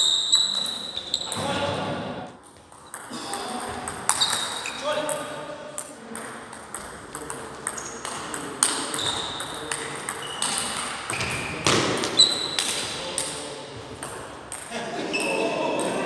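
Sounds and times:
short high squeaks: 0:00.0 - 0:01.6, 0:04.2 - 0:05.0, 0:12.2 - 0:12.6
table tennis balls clicking: 0:02.4 - 0:11.4.

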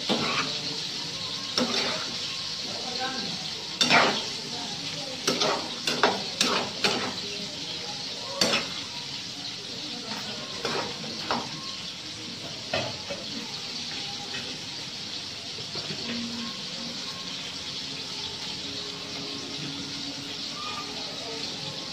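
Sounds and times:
metal spatula scraping a pan: 0:00.0 - 0:07.8, 0:08.4 - 0:09.4, 0:10.1 - 0:11.8
vegetables sizzling in a hot pan: 0:00.0 - 0:21.9.

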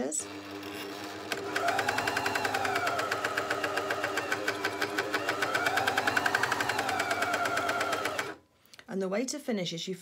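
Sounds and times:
sewing machine stitching: 0:00.0 - 0:08.4.

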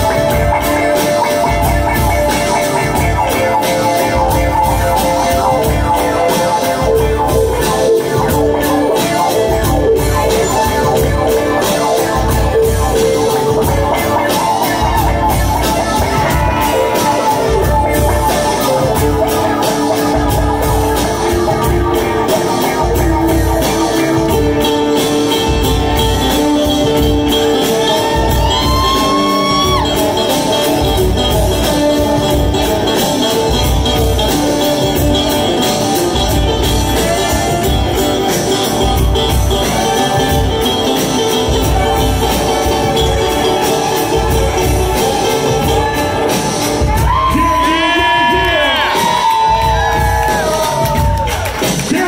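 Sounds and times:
bowed fiddle: 0:00.0 - 0:48.7
banjo picking: 0:00.0 - 0:51.0
acoustic guitar: 0:00.0 - 0:52.0.

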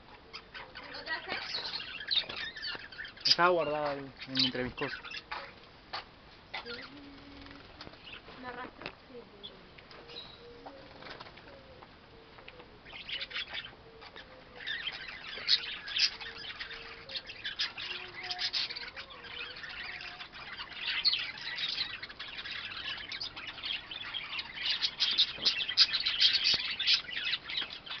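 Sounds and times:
budgerigars chattering: 0:00.3 - 0:06.9, 0:12.9 - 0:28.0.

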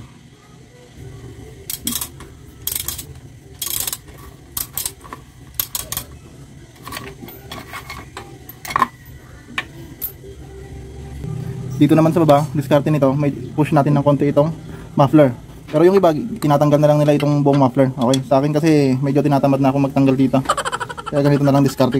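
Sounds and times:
ratchet wrench clicking: 0:01.7 - 0:06.1.

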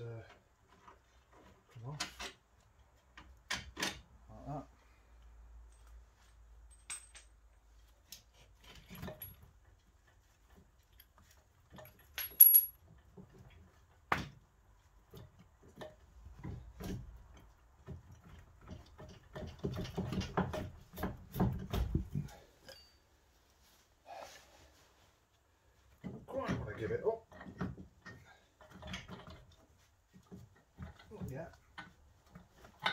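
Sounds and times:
hand tools clinking on metal: 0:11.8 - 0:12.8.

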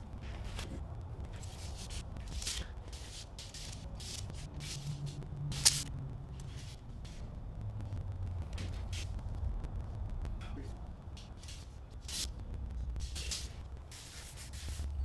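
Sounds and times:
hands rustling and scraping fixture: 0:00.2 - 0:07.2.

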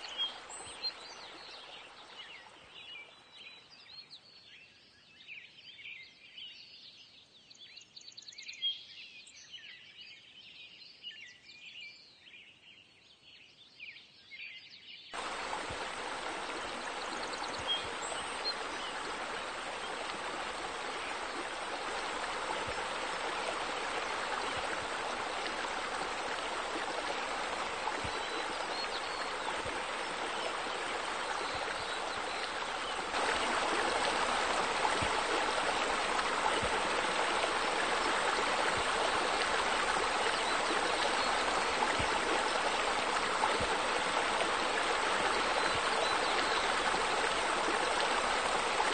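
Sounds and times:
birds chirping: 0:00.0 - 0:03.1, 0:15.2 - 0:48.9
rushing splashing water: 0:00.0 - 0:03.1, 0:15.2 - 0:48.9.

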